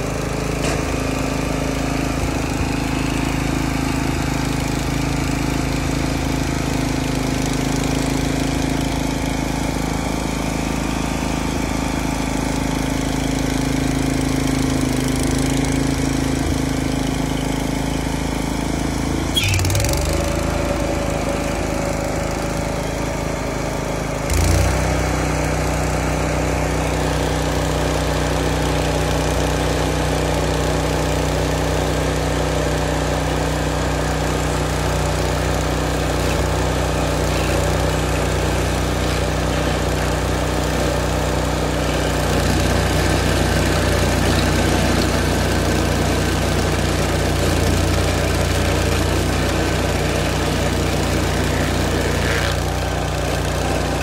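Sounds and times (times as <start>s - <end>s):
stump grinder engine running: 0.0s - 54.0s.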